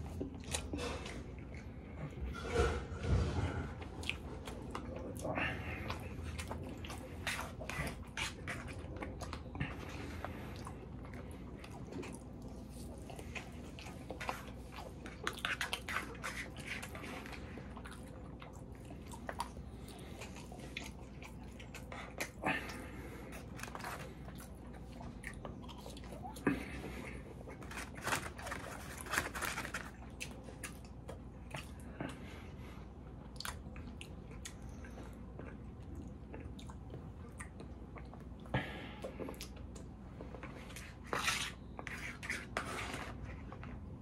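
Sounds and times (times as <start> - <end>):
person chewing food: 0.0 - 44.0.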